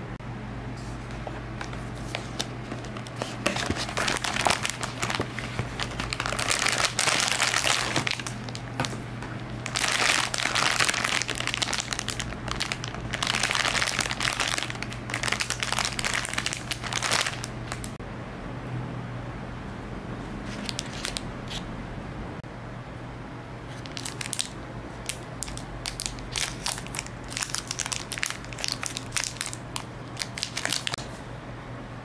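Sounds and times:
crinkling and crackling: 1.0s - 18.0s, 23.7s - 31.0s.

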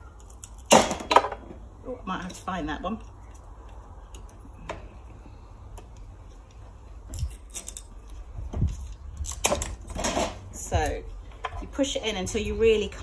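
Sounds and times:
secateurs cutting bamboo: 8.6s - 11.1s.

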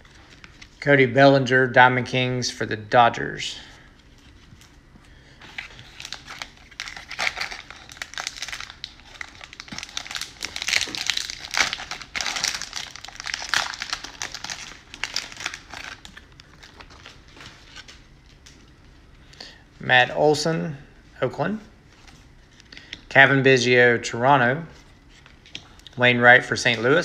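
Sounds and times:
plastic wrapper crinkling and tearing: 5.5s - 18.6s.

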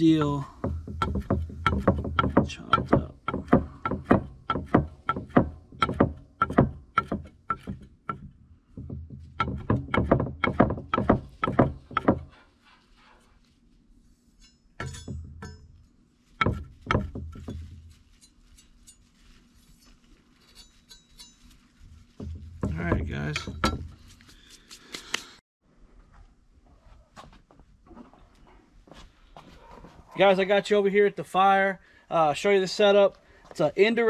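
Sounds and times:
knocks and clicks: 0.0s - 12.3s, 16.4s - 17.9s, 22.2s - 24.1s.

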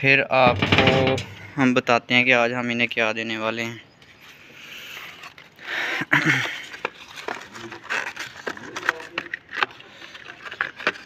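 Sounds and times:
bucket knocking and scraping: 0.4s - 1.6s.

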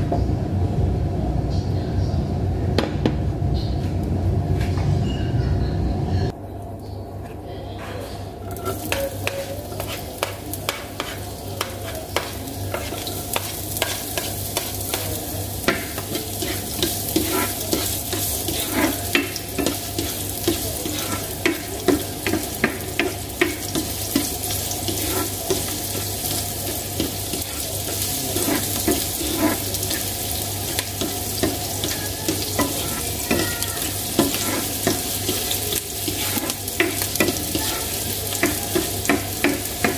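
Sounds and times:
spatula scraping pan: 7.8s - 39.9s
onion sizzling in oil: 8.4s - 39.9s.

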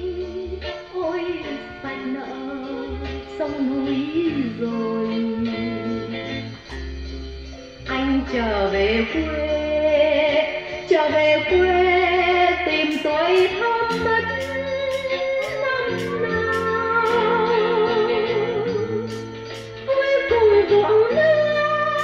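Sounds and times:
bass notes: 0.0s - 10.2s, 10.9s - 22.0s
cymbal ticks: 12.9s - 17.3s, 19.1s - 19.8s.

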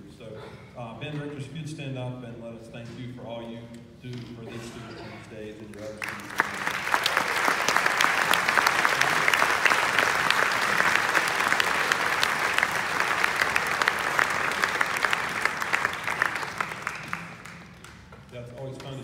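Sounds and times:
audience applauding: 5.7s - 19.0s.

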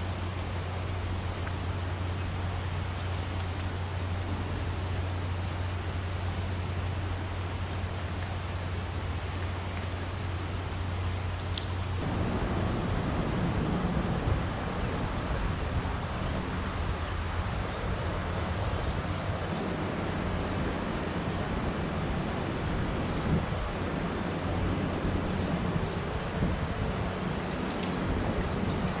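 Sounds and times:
wind noise on microphone: 0.0s - 29.0s
low rumble: 11.9s - 16.8s.

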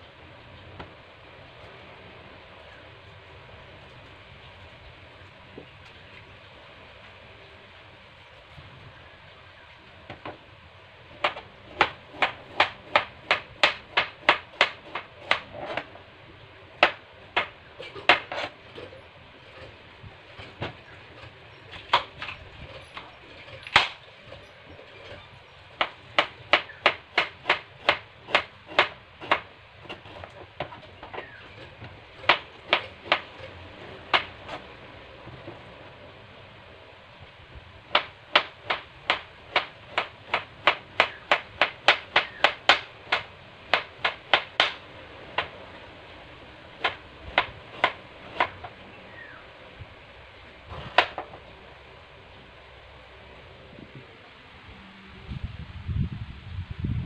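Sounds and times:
knife chopping on plastic board: 11.2s - 15.8s, 38.0s - 44.8s, 46.8s - 48.6s.

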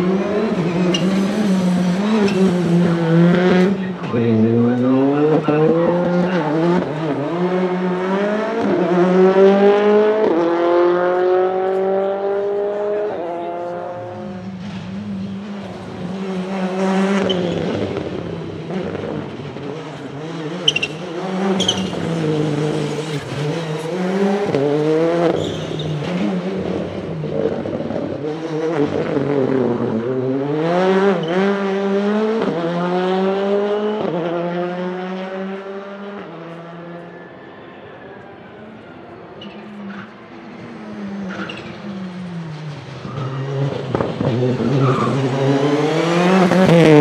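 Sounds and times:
rally car engine revving: 0.0s - 37.1s, 39.4s - 47.0s.

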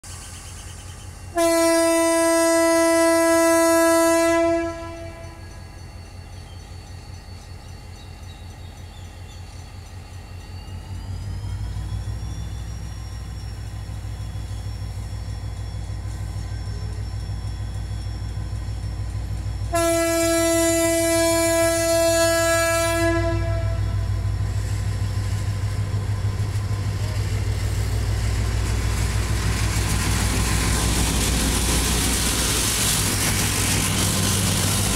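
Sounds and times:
locomotive air horn blasts: 1.3s - 5.6s, 19.7s - 24.1s
diesel engine rumbling: 10.7s - 34.9s.

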